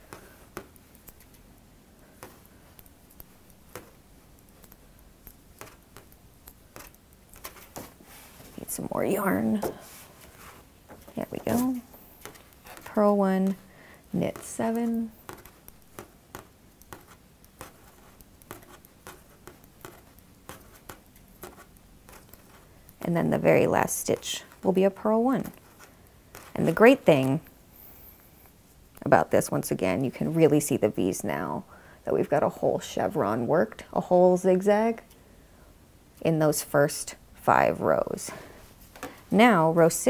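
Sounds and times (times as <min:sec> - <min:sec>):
knitting needles clicking: 0:00.1 - 0:01.5, 0:02.1 - 0:07.5
yarn rustle: 0:06.8 - 0:15.6.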